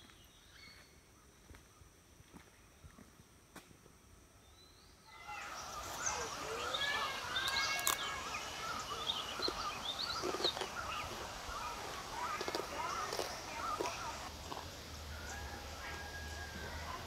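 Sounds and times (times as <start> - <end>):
birds chirping and calling: 5.1 - 17.0.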